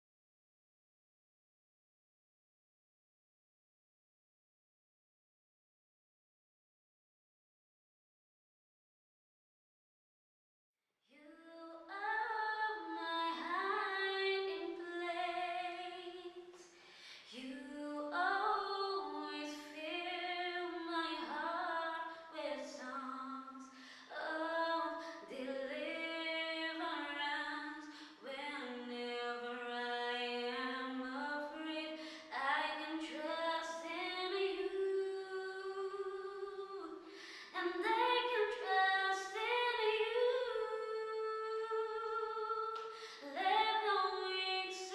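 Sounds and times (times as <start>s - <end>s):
woman singing unaccompanied: 11.1s - 16.5s, 17.3s - 44.9s.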